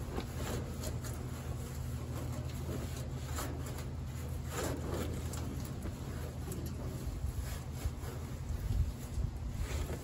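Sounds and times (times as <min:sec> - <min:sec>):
cloth rag rubbing on steel: 0:00.0 - 0:10.0
steady low hum: 0:00.0 - 0:10.0.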